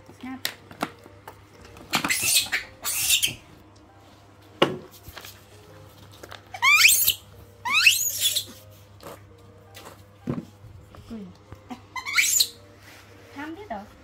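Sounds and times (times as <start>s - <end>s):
high upward-sliding squeaks: 6.6s - 8.5s.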